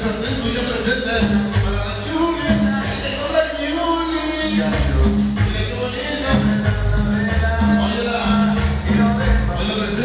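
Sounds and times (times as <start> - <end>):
latin dance music: 0.0 - 10.0.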